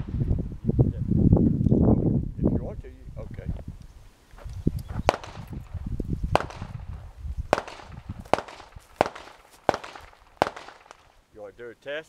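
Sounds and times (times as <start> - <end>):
sharp echoing pops: 5.0 - 11.2.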